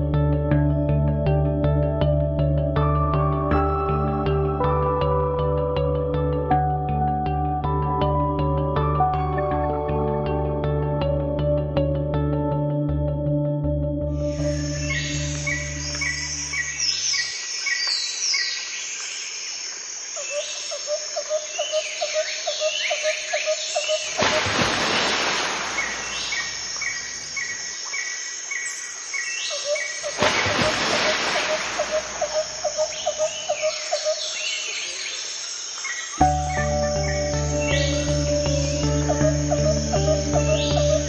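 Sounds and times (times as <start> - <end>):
cricket chirping in pulses: 14.2 - 41.0
birds chirping: 14.3 - 19.1, 20.2 - 41.0.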